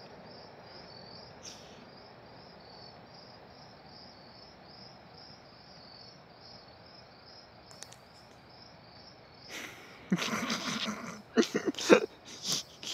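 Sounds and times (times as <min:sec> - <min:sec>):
crickets chirping: 0:00.0 - 0:12.9
faint hiss: 0:00.0 - 0:12.9
short clicks: 0:07.7 - 0:08.4.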